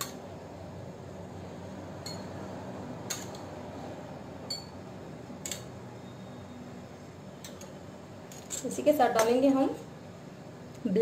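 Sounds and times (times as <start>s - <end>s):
faint steady hum: 0.0s - 11.0s
spoon clinking against bowl: 2.0s - 2.4s, 4.4s - 4.8s.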